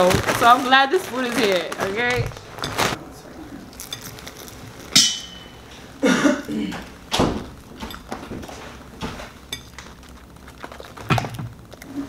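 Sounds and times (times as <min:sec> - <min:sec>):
quiet chewing: 0:09.4 - 0:12.0.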